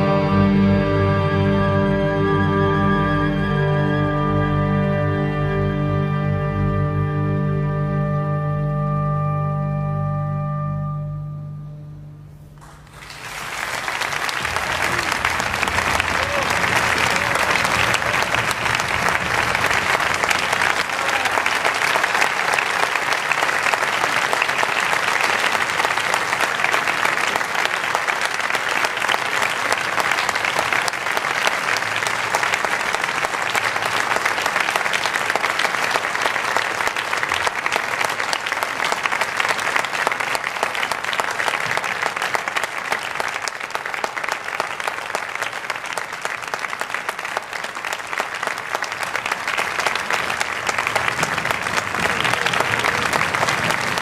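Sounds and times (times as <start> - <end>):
audience applauding: 12.6 - 54.0.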